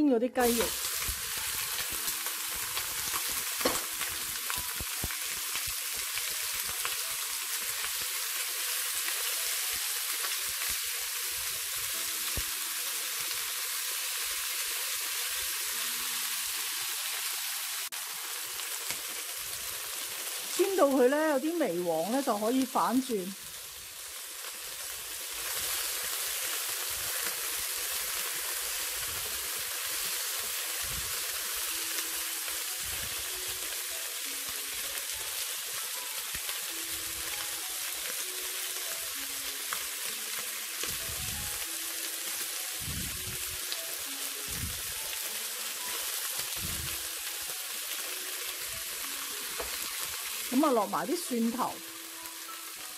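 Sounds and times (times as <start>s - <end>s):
chicken sizzling in oil: 0.4s - 52.9s.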